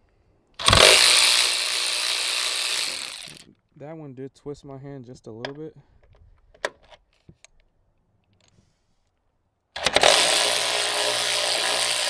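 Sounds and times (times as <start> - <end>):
cordless ratchet motor running: 0.6 - 3.4, 9.8 - 12.0.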